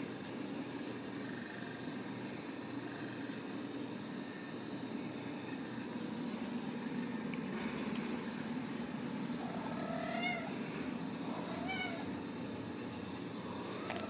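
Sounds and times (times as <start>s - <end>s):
steady low hum: 0.0s - 14.0s
kitten meowing: 9.6s - 10.5s, 11.5s - 12.1s.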